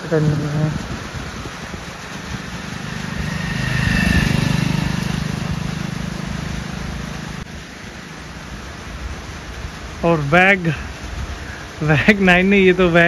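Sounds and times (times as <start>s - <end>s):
motorcycle engine passing: 0.7s - 7.5s.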